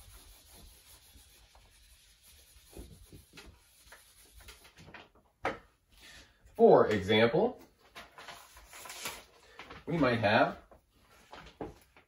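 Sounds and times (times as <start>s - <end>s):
eraser rubbing whiteboard: 0.0s - 4.8s.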